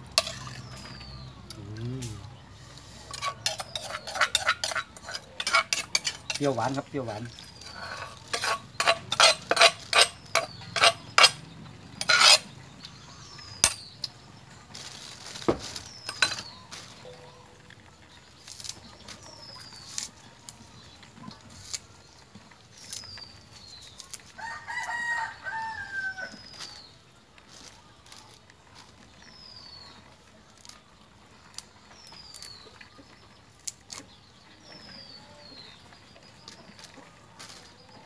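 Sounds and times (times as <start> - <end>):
rooster crowing: 24.4 - 26.3.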